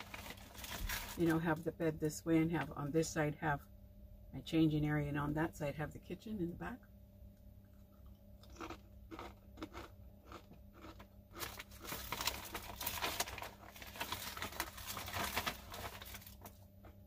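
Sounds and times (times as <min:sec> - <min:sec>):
snack bag crinkling: 0:00.0 - 0:01.4, 0:08.4 - 0:17.0
crunchy snack being chewed: 0:07.7 - 0:15.9.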